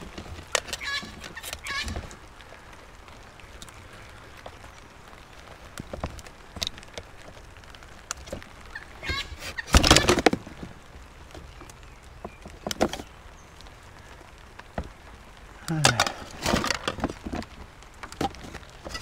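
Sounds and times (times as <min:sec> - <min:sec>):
rain hissing: 0:00.0 - 0:19.0
knocks and clatters of scrap handling: 0:09.0 - 0:10.8, 0:15.8 - 0:19.0.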